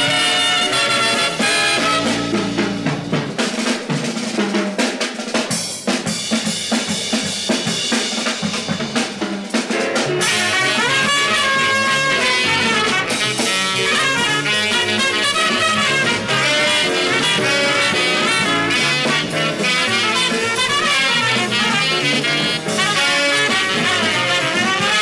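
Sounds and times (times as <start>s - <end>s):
bass and piano: 0.0s - 3.4s, 9.7s - 25.0s
jazz horns: 0.0s - 4.6s, 6.4s - 25.0s
jazz drum kit playing: 0.0s - 25.0s.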